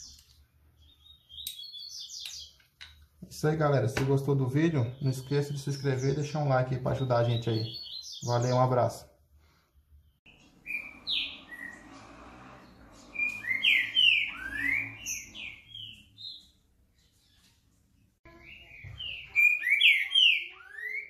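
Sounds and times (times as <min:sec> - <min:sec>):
bird singing whistled phrases: 0:13.1 - 0:16.1, 0:18.3 - 0:21.0.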